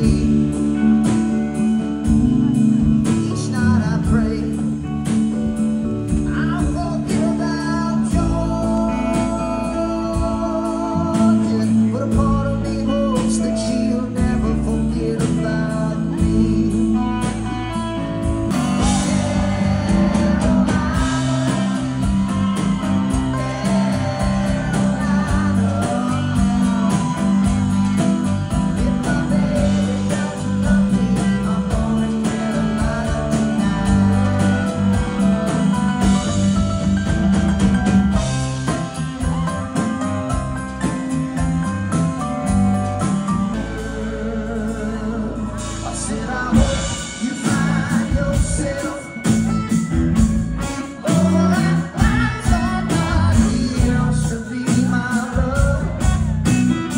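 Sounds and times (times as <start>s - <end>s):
person singing: 0.0s - 36.7s, 43.5s - 49.9s, 50.6s - 56.9s
rock band playing: 0.0s - 56.9s.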